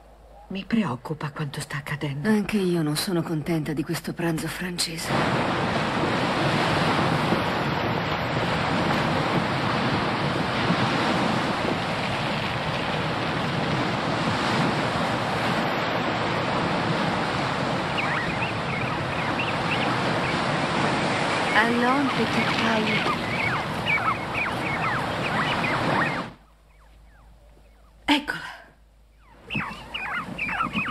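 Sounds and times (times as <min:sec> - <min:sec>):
wind: 0:00.0 - 0:30.9
sea surf breaking: 0:05.1 - 0:26.4
faint high chirp-like calls: 0:17.8 - 0:28.1, 0:29.1 - 0:30.9.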